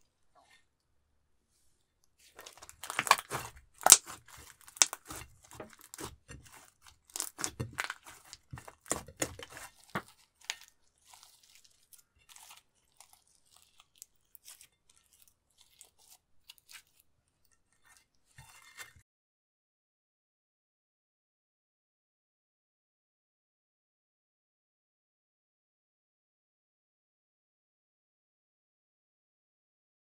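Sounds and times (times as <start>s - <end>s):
slime crackling and popping: 2.4s - 17.0s.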